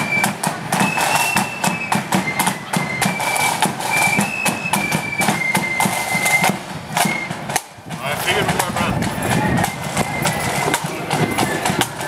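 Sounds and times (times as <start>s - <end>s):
sharp drum beats: 0.0s - 12.0s
shrill flutes playing: 0.0s - 12.0s.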